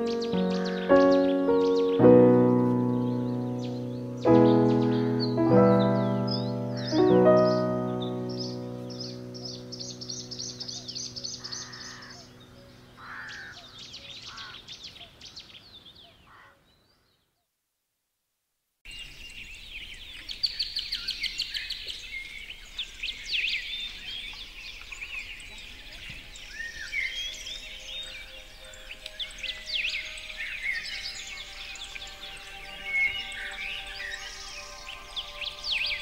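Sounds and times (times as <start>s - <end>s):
soft sustained music tones: 0.0s - 14.0s, 25.4s - 36.0s
dense chorus of bird chirps: 0.0s - 17.3s, 18.9s - 36.0s
songbirds chirping and trilling: 0.0s - 17.3s, 18.9s - 36.0s.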